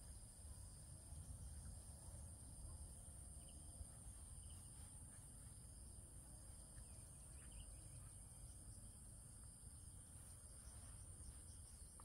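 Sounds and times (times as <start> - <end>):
insect chorus: 0.0 - 12.0
bird chirps: 6.7 - 8.6.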